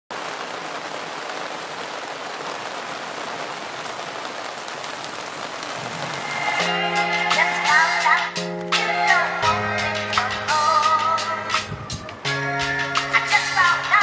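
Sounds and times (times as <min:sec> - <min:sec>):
rain falling on boardwalk: 0:00.1 - 0:13.8
music: 0:06.2 - 0:14.0.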